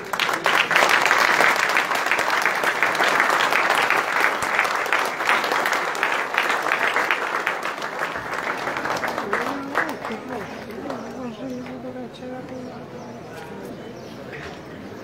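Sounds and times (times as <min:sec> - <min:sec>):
crowd applauding: 0:00.0 - 0:11.8.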